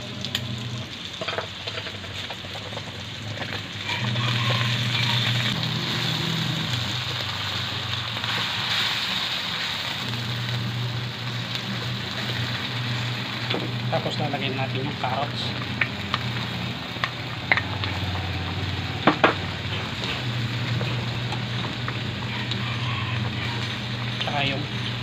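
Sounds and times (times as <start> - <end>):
meat and onions sizzling in wok: 0.0 - 25.0
low hum: 10.0 - 25.0
wooden spatula scraping wok: 17.4 - 25.0.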